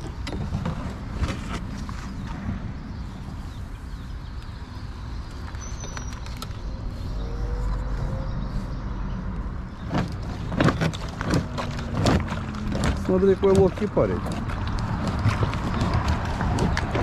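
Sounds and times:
road traffic rumble: 0.0s - 17.0s
kayak scraping on gravel: 0.4s - 2.6s, 9.6s - 17.0s.

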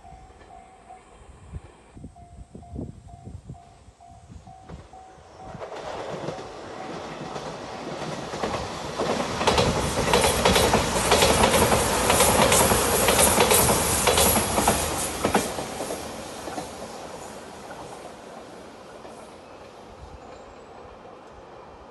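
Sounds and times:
electric train running past: 0.0s - 21.9s
wheels clicking over rail joints: 5.5s - 20.5s.

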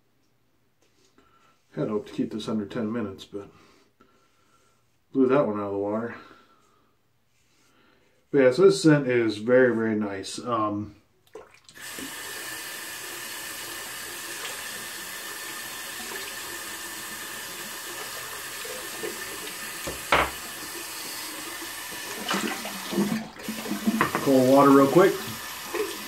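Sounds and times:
tap running into a sink: 19.0s - 20.6s, 22.0s - 26.0s.

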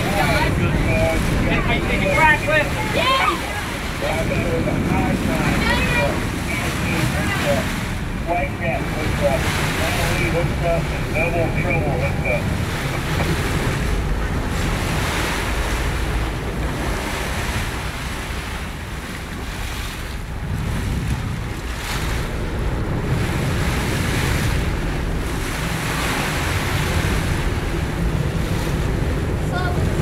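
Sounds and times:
low rumble: 0.0s - 19.5s
ocean waves: 0.0s - 30.0s
wind buffeting microphone: 0.0s - 30.0s.

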